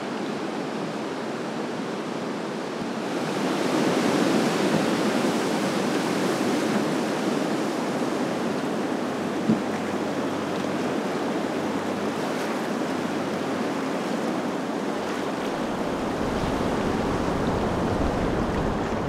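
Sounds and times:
river rapids roaring: 0.0 - 19.0
low rumble: 15.5 - 19.0.

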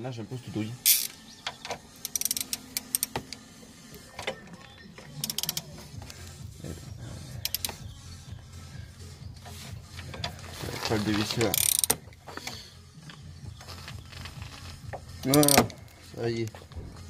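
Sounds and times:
ratchet clicking: 0.9 - 1.2, 2.0 - 3.4, 5.2 - 5.7, 7.4 - 7.8, 11.2 - 12.0, 13.9 - 15.8.

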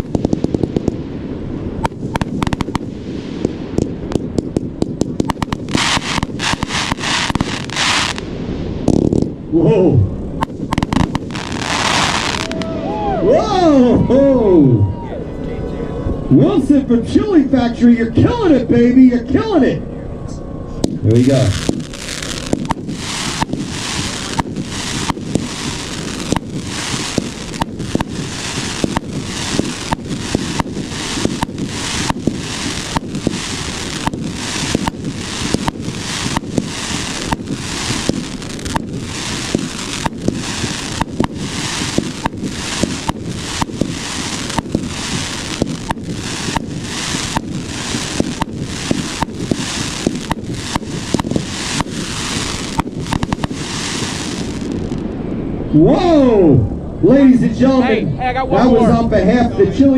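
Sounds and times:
fireworks shots firing: 0.0 - 9.5, 10.4 - 12.7, 20.8 - 55.2.

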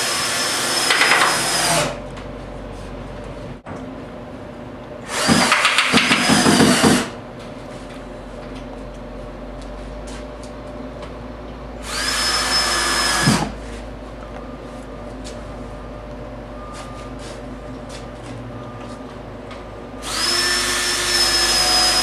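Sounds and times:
cordless drill motor whine: 0.0 - 2.0, 11.8 - 13.5, 20.0 - 22.0
drill rapid clicks: 0.2 - 1.9, 5.1 - 7.1.

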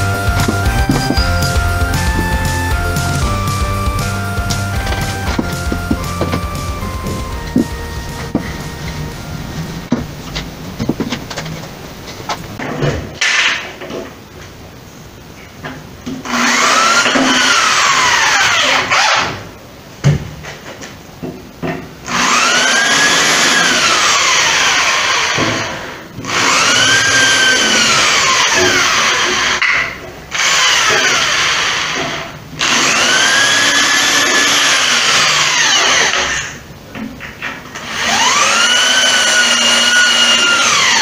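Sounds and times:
electric drill whirring: 16.3 - 19.3, 22.1 - 29.6, 30.3 - 36.6, 37.8 - 41.0.

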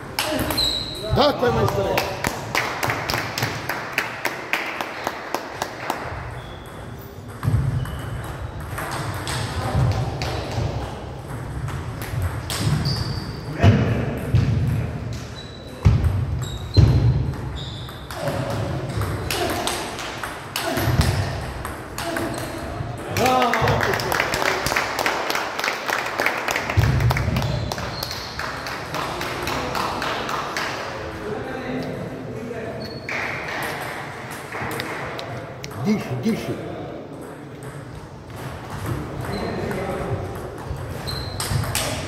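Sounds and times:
voices in hall: 0.0 - 5.7, 18.1 - 42.0.

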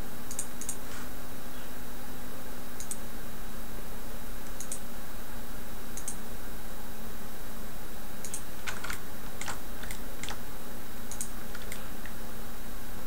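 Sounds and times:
computer mouse clicks: 0.3 - 0.8, 2.8 - 3.0, 4.5 - 4.8, 6.0 - 6.2, 8.2 - 10.4, 11.1 - 12.2.

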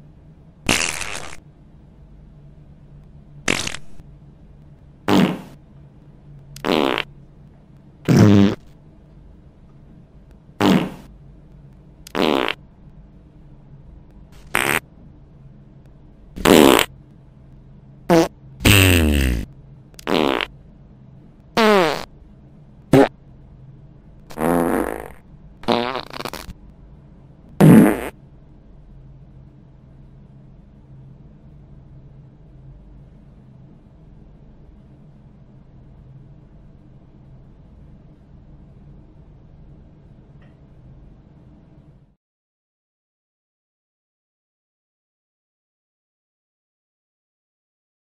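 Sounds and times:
short fart sounds: 0.7 - 1.4, 3.5 - 4.0, 5.1 - 5.6, 6.6 - 7.1, 8.1 - 8.7, 10.6 - 11.1, 12.1 - 12.6, 14.4 - 14.8, 16.4 - 16.9, 18.1 - 20.5, 21.6 - 22.1, 22.9 - 23.1, 24.3 - 26.6, 27.6 - 28.2.

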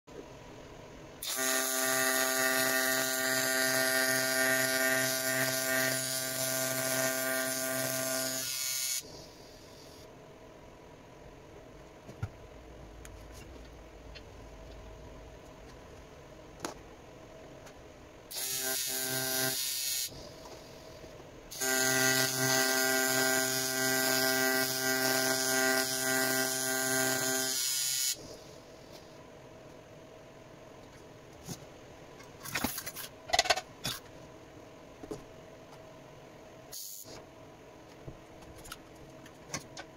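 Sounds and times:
welding arc buzzing and hissing: 1.2 - 10.1, 18.3 - 29.1, 36.8 - 37.2.

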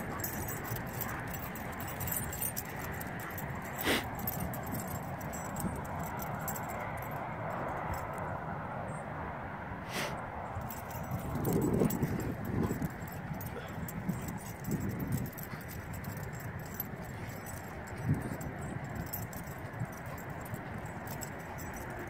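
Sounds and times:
dogs scuffling: 0.0 - 6.5
collar tags jingling: 0.0 - 8.4, 10.4 - 22.0.

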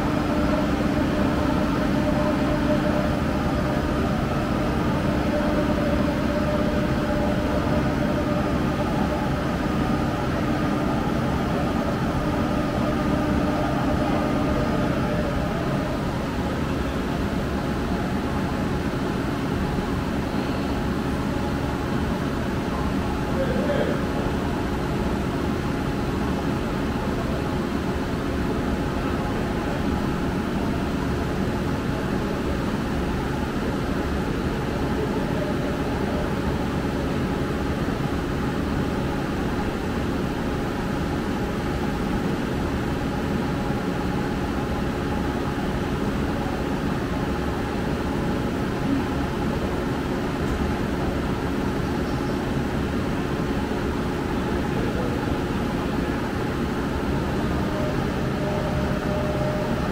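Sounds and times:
steady mechanical drone: 0.0 - 59.9.

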